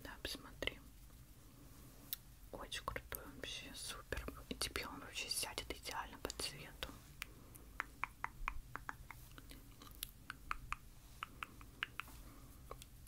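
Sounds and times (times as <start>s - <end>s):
soft close clicks: 7.2s - 13.0s.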